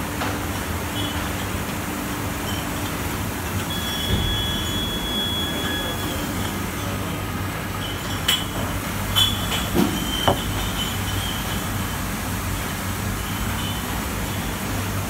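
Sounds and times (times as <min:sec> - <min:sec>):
bottle washing machine humming: 0:00.0 - 0:15.0
glass bottles clinking: 0:03.6 - 0:12.0.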